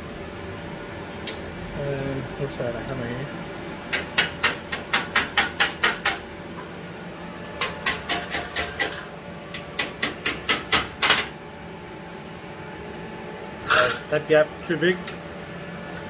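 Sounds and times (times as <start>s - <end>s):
hammer tapping sheet metal: 3.9s - 6.2s, 7.6s - 9.0s.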